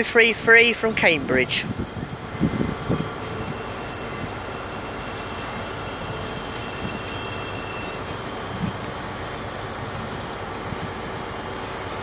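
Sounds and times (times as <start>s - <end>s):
trains rumbling: 0.0s - 12.0s.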